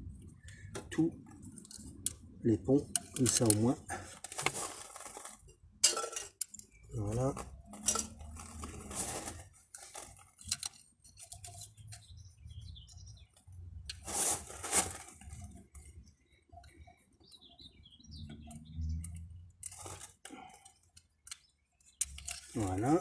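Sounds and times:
wrench clinking and scraping on metal: 0:02.9 - 0:12.2, 0:21.3 - 0:23.0.

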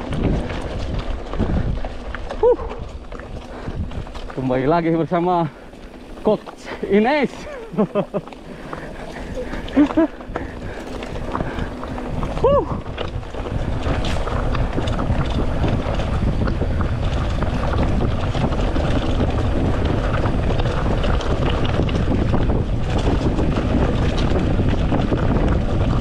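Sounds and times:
bike tyres and frame rattling: 0:00.0 - 0:26.0
wind rushing over microphone: 0:00.0 - 0:26.0.

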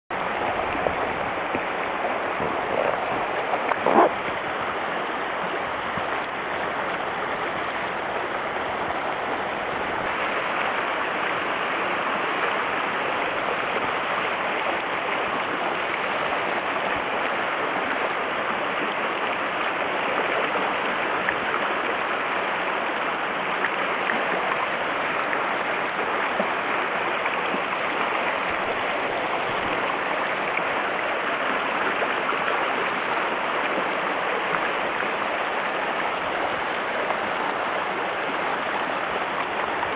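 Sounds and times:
river water rushing: 0:00.1 - 0:39.9.

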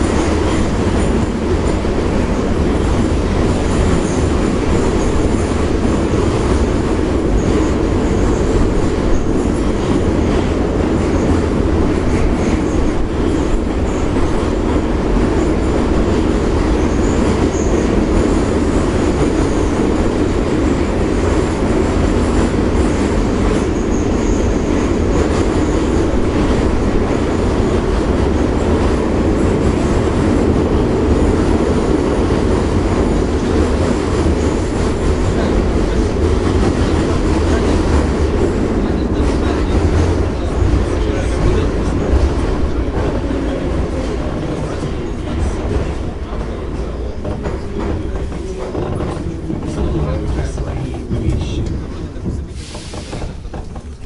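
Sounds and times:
train wheels rumbling: 0:00.0 - 0:54.0.

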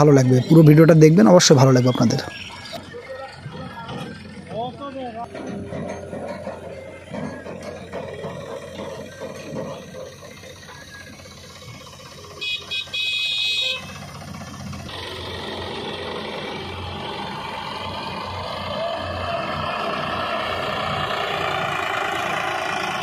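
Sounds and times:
tractor diesel engines running: 0:00.0 - 0:23.0
horn honking: 0:01.5 - 0:03.0, 0:12.2 - 0:14.2.

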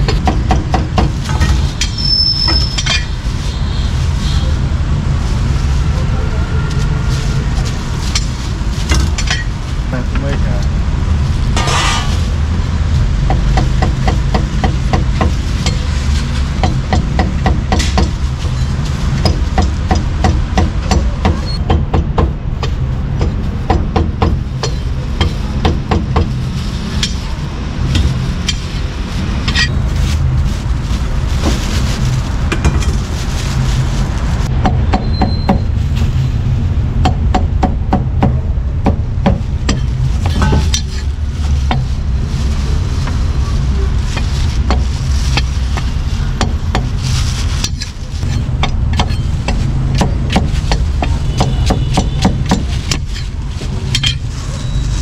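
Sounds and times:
steady low rumble: 0:02.7 - 0:34.9, 0:35.6 - 0:55.0.

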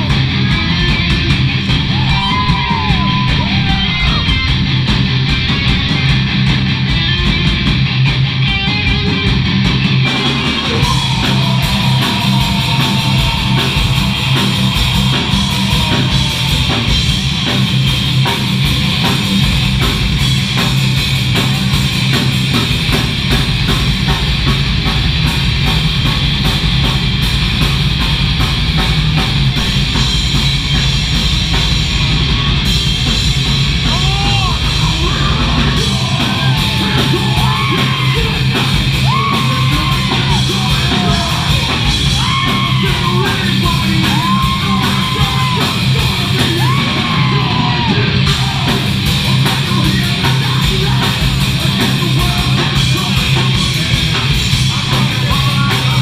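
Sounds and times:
heavy metal band playing live: 0:00.0 - 0:56.0
vocalist shouting: 0:33.8 - 0:48.1.

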